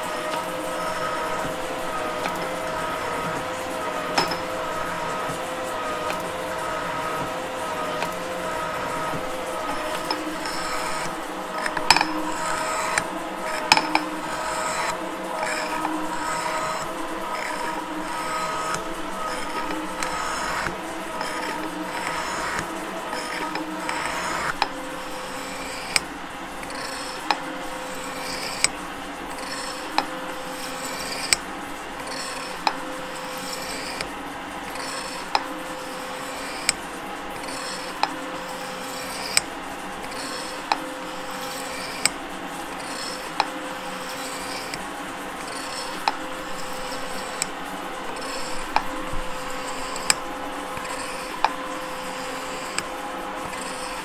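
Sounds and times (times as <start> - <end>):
shaper ram clacking: 0.0 - 24.7
metal shaper machine humming: 0.0 - 54.0.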